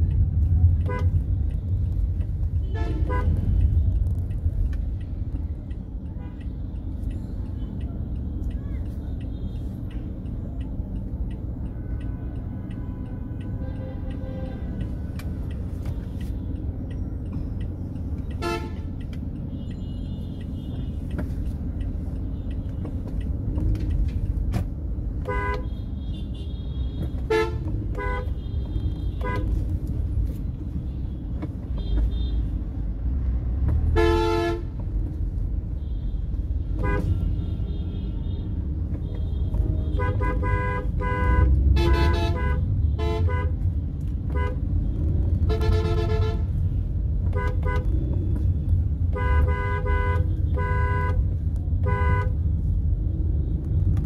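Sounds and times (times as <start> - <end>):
traffic rumble: 0.0 - 54.0
car horns honking: 18.3 - 21.1, 25.1 - 30.0, 33.8 - 35.2, 35.8 - 52.4.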